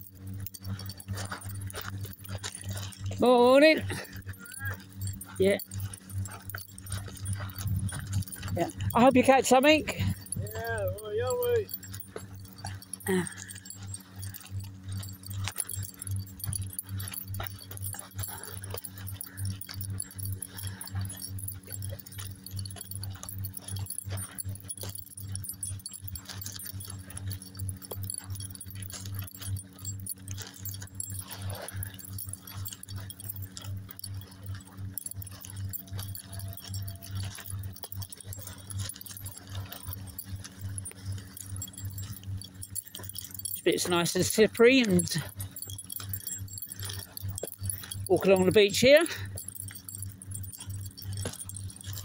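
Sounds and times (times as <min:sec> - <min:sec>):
low steady hum: 0:00.0 - 0:52.0
footsteps on sand and pebbles: 0:00.1 - 0:28.6.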